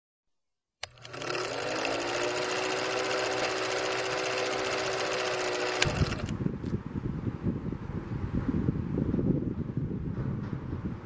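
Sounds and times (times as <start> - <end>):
film projector clattering: 0.8 - 6.4.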